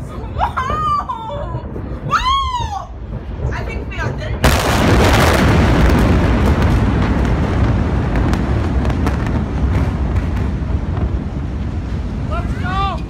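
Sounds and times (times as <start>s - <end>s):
deep rumbling explosion roar: 0.0s - 13.0s.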